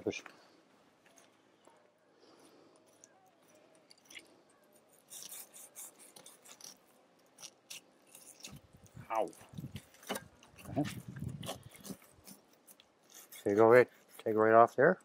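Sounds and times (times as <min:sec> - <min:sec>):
knife scraping through fish: 0:02.8 - 0:14.4.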